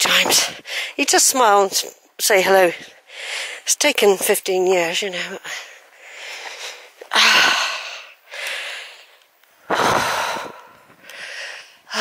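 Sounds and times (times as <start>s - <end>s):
heavy breathing: 5.4s - 12.0s.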